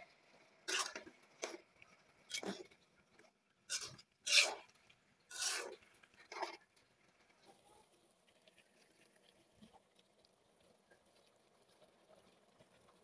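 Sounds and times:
spatula scraping a pan: 0.7s - 1.1s, 3.7s - 4.7s, 5.3s - 6.6s.

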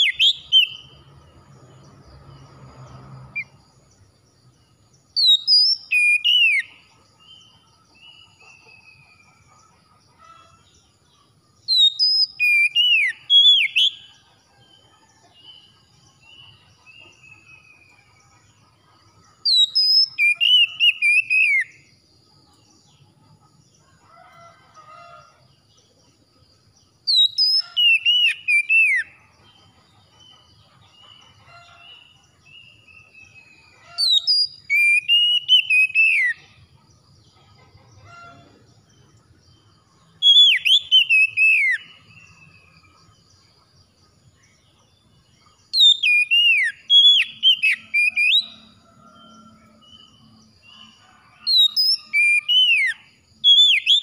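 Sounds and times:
bird singing whistled phrases: 0.0s - 0.8s, 5.2s - 6.7s, 11.7s - 14.0s, 19.5s - 21.7s, 27.1s - 29.1s, 34.0s - 36.4s, 40.2s - 41.9s, 45.8s - 48.6s.

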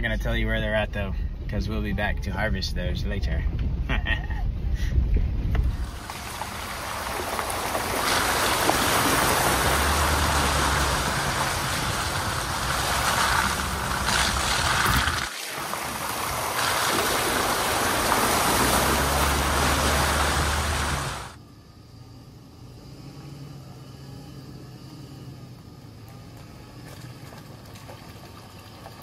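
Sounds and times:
tyre splashing through mud puddles: 5.8s - 21.4s, 26.1s - 29.0s.

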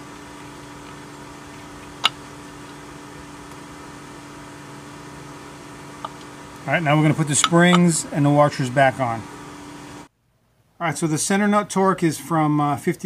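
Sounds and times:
machine hum with held tones: 0.0s - 10.2s.

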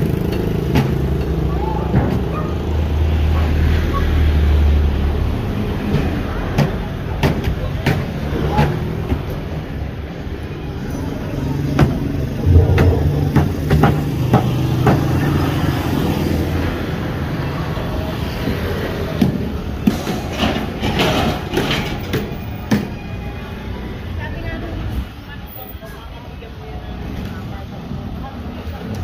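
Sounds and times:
background voices: 12.4s - 14.4s
low engine hum: 12.4s - 14.9s.

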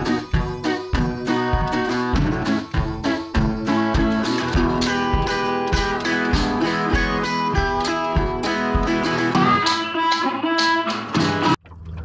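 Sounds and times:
guitar tune over a beat: 0.0s - 11.6s.

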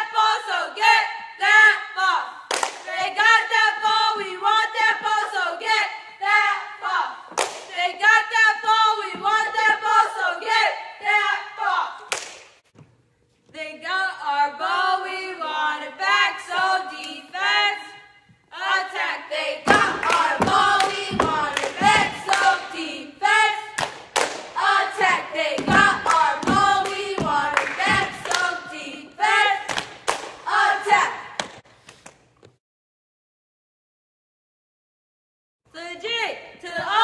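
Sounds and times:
girls chanting a cheer: 0.0s - 12.1s, 13.7s - 31.4s
claps: 2.5s - 2.9s, 7.4s - 7.8s, 12.1s - 12.6s, 19.7s - 22.7s, 23.8s - 24.6s, 25.6s - 28.5s, 29.7s - 30.4s
foot stomps: 19.7s - 22.6s, 24.4s - 28.8s.

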